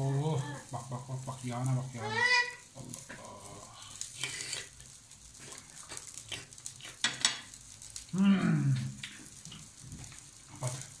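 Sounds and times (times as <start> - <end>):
man's low vocal sound: 8.2 - 8.9.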